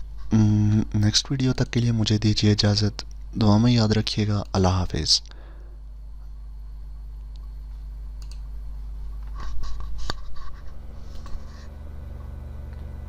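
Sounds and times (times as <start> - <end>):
low electrical hum: 0.0 - 13.0
computer mouse clicks: 8.2 - 8.5.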